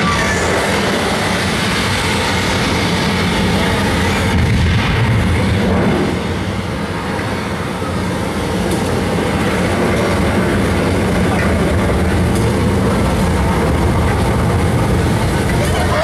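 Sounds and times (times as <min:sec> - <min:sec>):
tram rumbling: 0:00.0 - 0:16.0.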